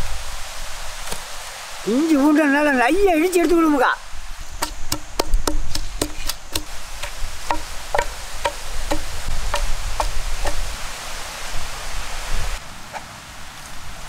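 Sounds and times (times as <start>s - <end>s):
steady hiss: 0.0s - 14.0s
pestle pounding in stone mortar: 4.6s - 10.6s.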